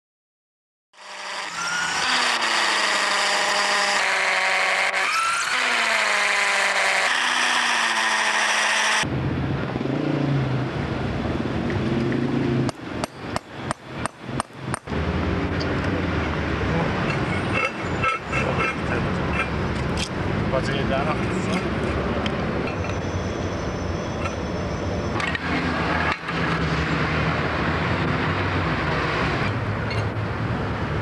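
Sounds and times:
jackhammer pounding concrete: 1.0s - 9.0s
machine whining: 1.0s - 9.1s.

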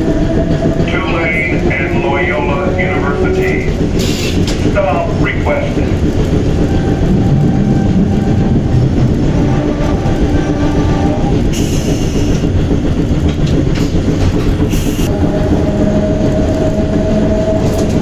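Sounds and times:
wheels squealing on rails: 0.0s - 12.6s
streetcar rumbling on tracks: 0.0s - 18.0s.

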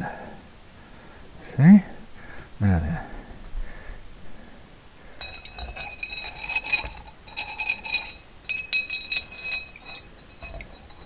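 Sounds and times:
metal clinking against glass jar: 5.1s - 11.0s.

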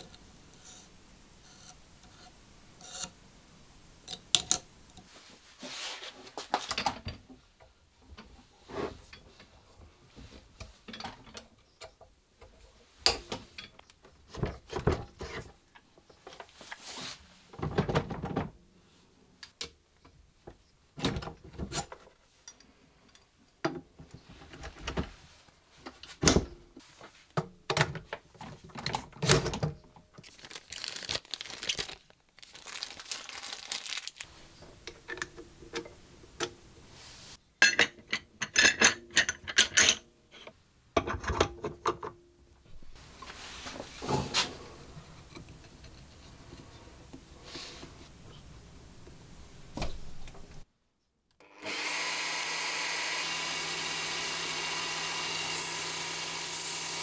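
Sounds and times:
plastic zip bag crinkling: 30.2s - 34.3s.

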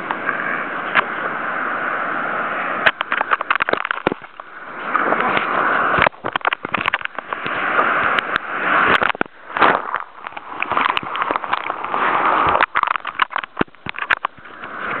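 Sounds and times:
surf water splashing: 0.0s - 15.0s
camera knocking and clicking: 6.0s - 7.5s, 12.5s - 14.4s.

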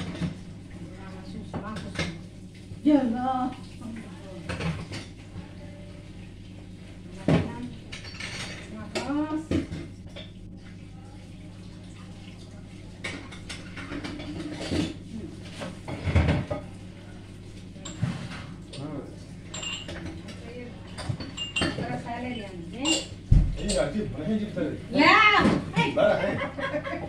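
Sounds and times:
dishes and utensils clanking: 1.5s - 2.2s, 7.2s - 10.4s, 13.0s - 16.8s, 17.8s - 24.0s.

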